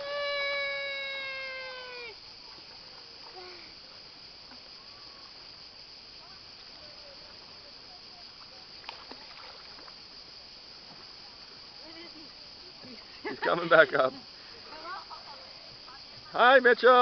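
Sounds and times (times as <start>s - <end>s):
child swimming water sounds: 0.0s - 5.6s, 6.3s - 10.2s
steady high hiss: 0.0s - 17.0s.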